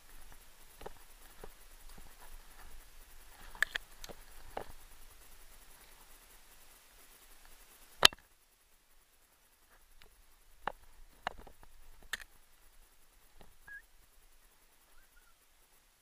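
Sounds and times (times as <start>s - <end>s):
high chirp: 13.6s - 13.9s, 14.8s - 15.4s.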